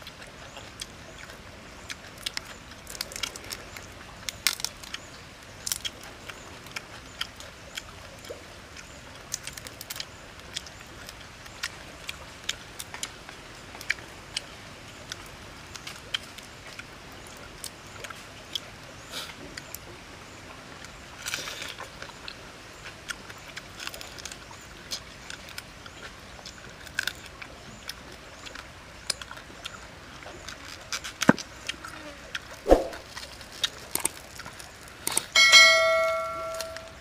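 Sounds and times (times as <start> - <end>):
prawn shells cracking: 33.0 - 37.0
multi-tone bell chime: 35.4 - 37.0.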